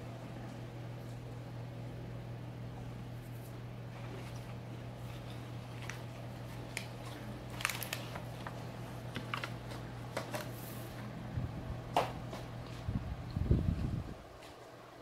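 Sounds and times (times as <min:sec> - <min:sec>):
steady low hum: 0:00.0 - 0:15.0
snack packaging crinkling: 0:04.3 - 0:10.6.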